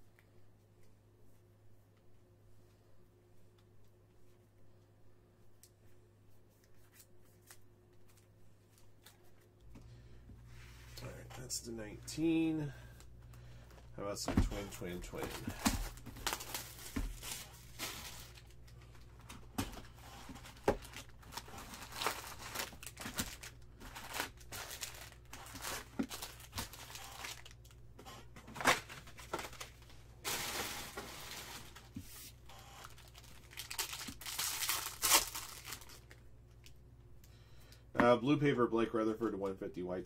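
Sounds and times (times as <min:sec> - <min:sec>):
plastic wrappers crinkling: 0:14.6 - 0:27.8, 0:28.5 - 0:32.0, 0:32.8 - 0:36.8
plastic wrapper tearing: 0:20.4 - 0:27.7, 0:32.8 - 0:36.2.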